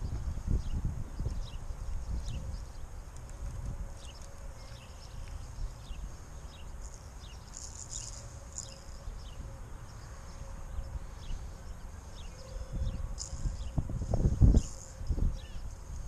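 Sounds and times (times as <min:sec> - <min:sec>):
wind on microphone: 0:00.0 - 0:06.1, 0:10.6 - 0:16.0.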